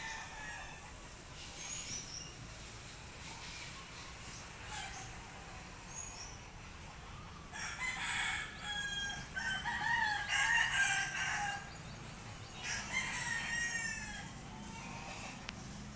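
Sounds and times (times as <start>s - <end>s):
rooster crowing: 0.0s - 0.9s, 7.5s - 11.8s, 12.6s - 15.3s.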